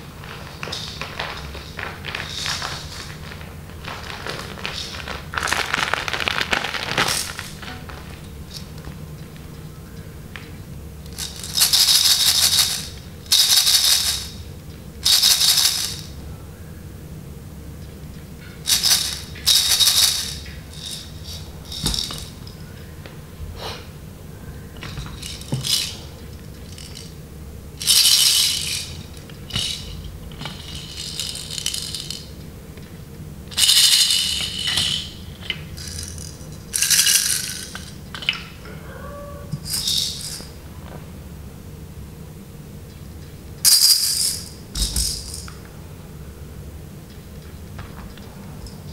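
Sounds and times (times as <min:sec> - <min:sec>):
plastic baby rattles shaken: 0:04.1 - 0:07.6, 0:11.2 - 0:14.4, 0:15.1 - 0:16.1, 0:18.7 - 0:22.4, 0:25.0 - 0:26.0, 0:27.8 - 0:32.2, 0:33.6 - 0:35.1, 0:35.8 - 0:37.9, 0:39.6 - 0:40.5, 0:43.7 - 0:45.5.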